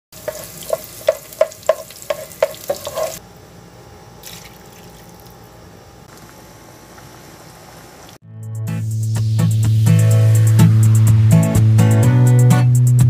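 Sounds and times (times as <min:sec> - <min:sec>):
onions sizzling in oil: 0:00.1 - 0:03.2
spatula knocking against pan: 0:00.2 - 0:03.2.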